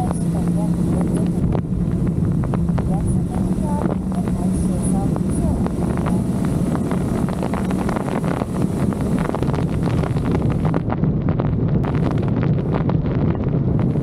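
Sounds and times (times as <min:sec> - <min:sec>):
motorcycle engine drone: 0:00.0 - 0:14.0
wind buffeting microphone: 0:00.0 - 0:14.0.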